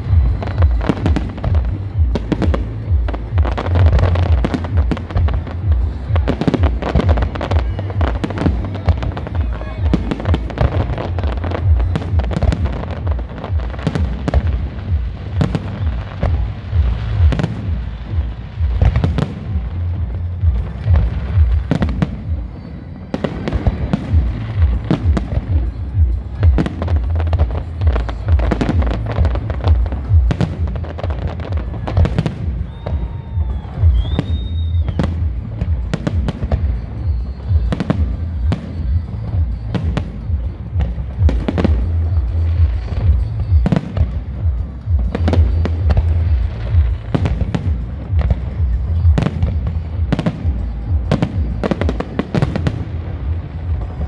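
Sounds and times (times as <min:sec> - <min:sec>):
continuous low rumble: 0:00.0 - 0:54.0
high whistle: 0:32.4 - 0:35.4, 0:36.5 - 0:39.9.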